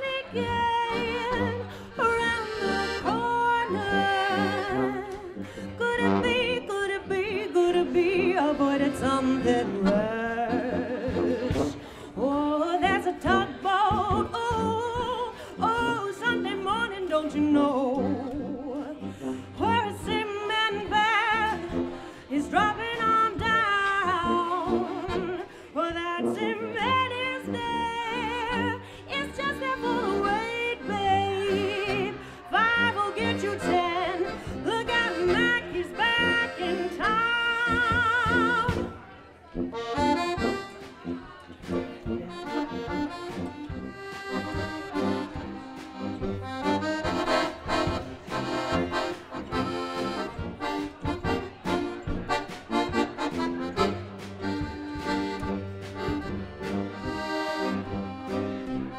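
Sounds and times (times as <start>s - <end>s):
woman singing: 0.0s - 21.7s, 22.3s - 38.9s
piano accordion: 0.0s - 38.8s, 39.6s - 58.9s
tuba: 0.2s - 58.9s.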